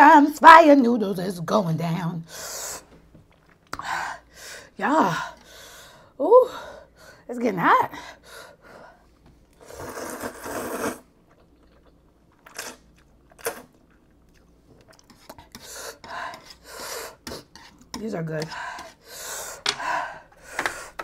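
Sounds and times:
quiet chewing: 3.2s - 3.8s, 11.2s - 16.6s
noodle slurping: 9.6s - 13.8s.

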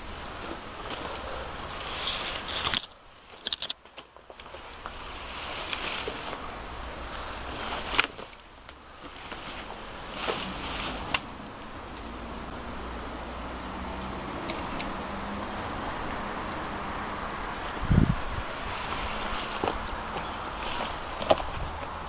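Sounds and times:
sharp clicks and crackles: 1.6s - 5.0s
wind noise on microphone: 16.7s - 22.0s.

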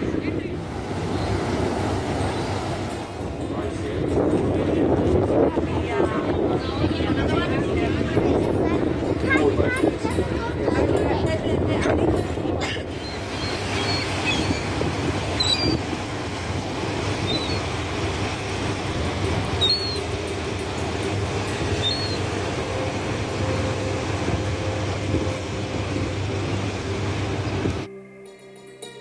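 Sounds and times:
high bird chirps: 12.9s - 14.8s, 15.4s - 15.8s, 17.2s - 17.7s, 19.6s - 20.1s, 21.7s - 22.3s.

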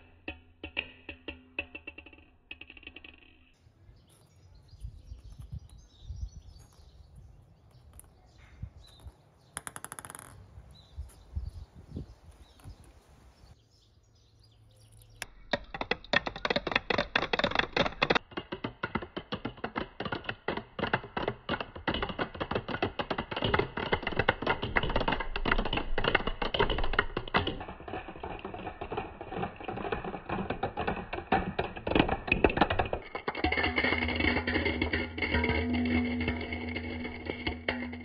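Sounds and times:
balls bouncing on wooden steps: 4.0s - 13.6s, 15.2s - 38.0s.

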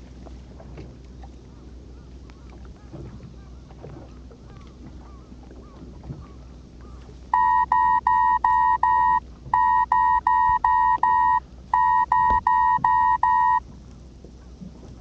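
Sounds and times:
electronic beeper short beeps: 7.4s - 13.6s.

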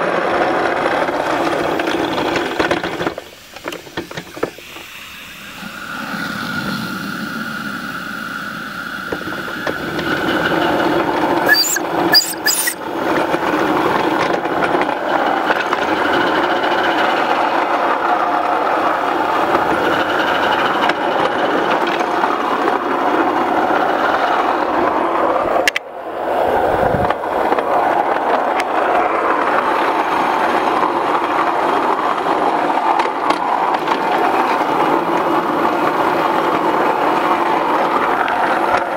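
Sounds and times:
steel wheels rumbling on rails: 0.0s - 38.9s
sharp clicks: 11.5s - 12.8s.

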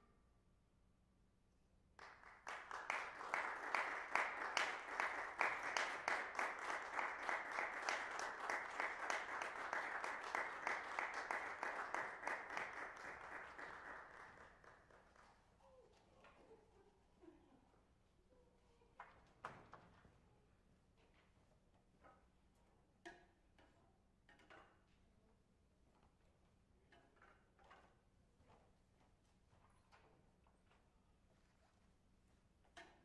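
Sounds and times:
audience applauding: 2.0s - 15.3s.

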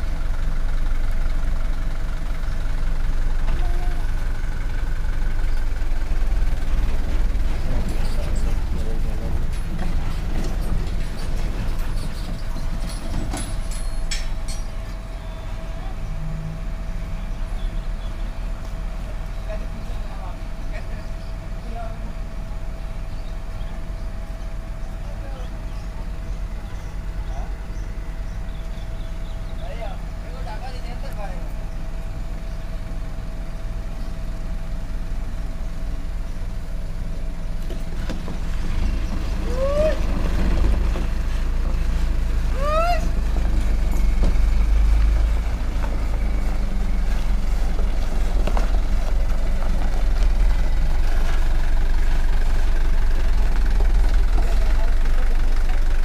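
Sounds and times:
diesel truck engine rumbling: 0.0s - 56.0s.

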